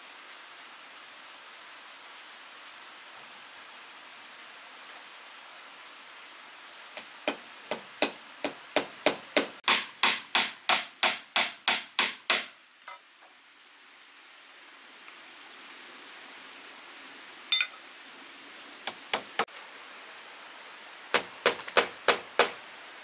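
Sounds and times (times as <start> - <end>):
sharp blows on wood: 7.0 - 12.6, 21.1 - 22.6.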